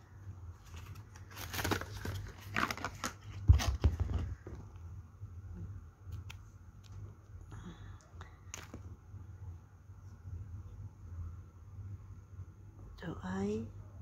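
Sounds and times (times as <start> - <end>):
low steady hum: 0.0 - 14.0
rustling and crinkling handling: 0.4 - 4.8.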